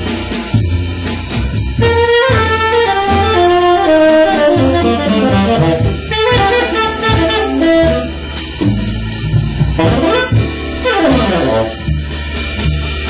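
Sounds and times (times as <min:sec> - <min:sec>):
bass: 0:00.0 - 0:13.0
drum kit: 0:00.0 - 0:13.0
tenor saxophone melody: 0:01.8 - 0:12.0.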